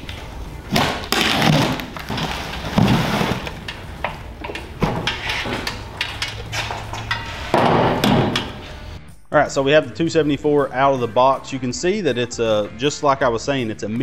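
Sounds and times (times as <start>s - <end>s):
sharp knocks: 7.5s - 8.6s.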